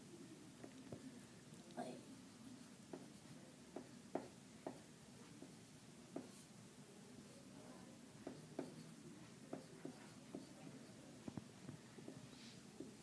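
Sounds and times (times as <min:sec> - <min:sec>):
marker writing on whiteboard: 0:02.3 - 0:06.5, 0:08.1 - 0:13.0.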